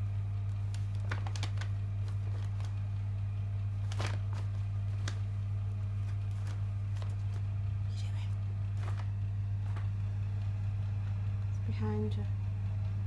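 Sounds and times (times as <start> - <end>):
low electrical hum: 0.0 - 13.0
paper crinkling and rustling: 0.4 - 7.7, 8.4 - 10.4.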